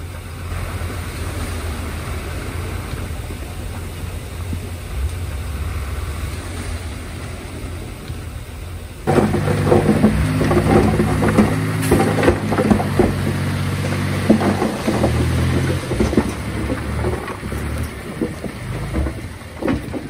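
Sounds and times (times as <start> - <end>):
bulldozer diesel engine running: 0.0 - 20.0
machinery clanks and knocks: 9.1 - 20.0.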